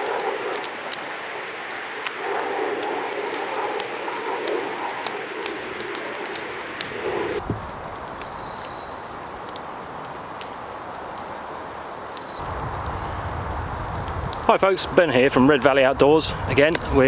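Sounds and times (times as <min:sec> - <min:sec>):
songbird whistling: 0:07.6 - 0:09.2, 0:11.7 - 0:12.4.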